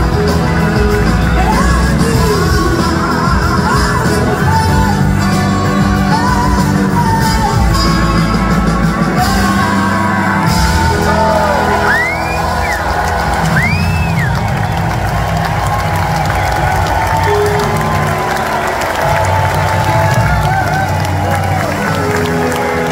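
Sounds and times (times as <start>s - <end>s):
blues-rock band playing: 0.0s - 22.9s
woman singing lead vocal: 1.1s - 11.6s
audience whooping and shouting: 9.3s - 22.9s.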